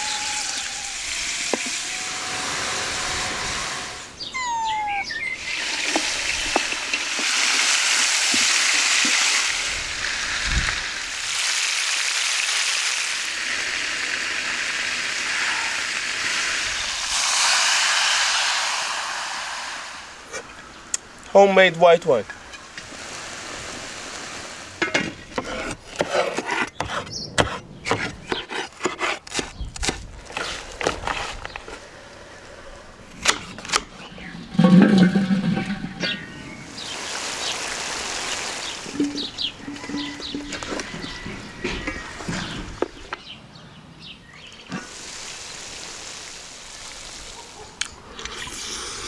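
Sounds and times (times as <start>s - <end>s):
meat sizzling in hot oil: 5.4s - 20.1s.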